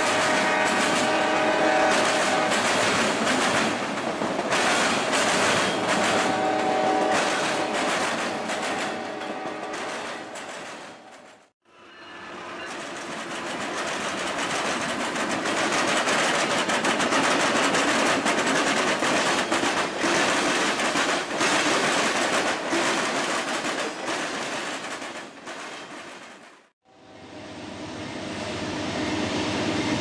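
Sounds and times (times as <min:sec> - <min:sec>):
freight train passing: 0:00.0 - 0:30.0
steel wheels clicking over rail joints: 0:01.9 - 0:11.5, 0:12.7 - 0:26.7.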